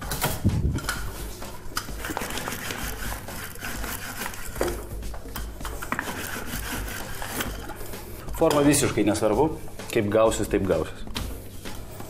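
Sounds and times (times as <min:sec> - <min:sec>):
rolling pin rubbing dough: 0:01.2 - 0:09.1.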